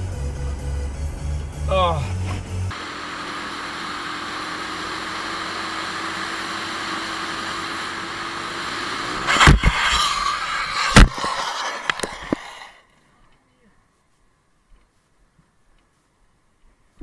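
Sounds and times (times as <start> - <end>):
wind and road noise: 3.6 - 13.0
rough scraping: 9.1 - 12.9.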